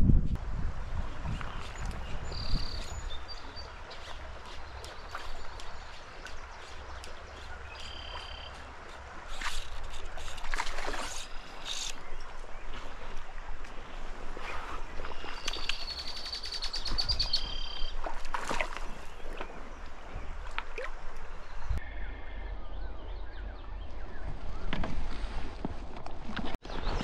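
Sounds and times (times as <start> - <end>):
creek water running over gravel: 0.6 - 21.7.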